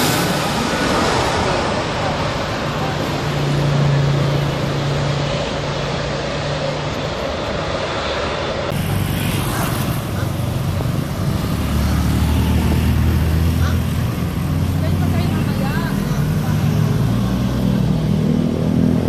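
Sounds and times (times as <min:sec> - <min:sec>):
steady road traffic: 0:00.0 - 0:19.0
motor scooter passing close: 0:08.8 - 0:19.0.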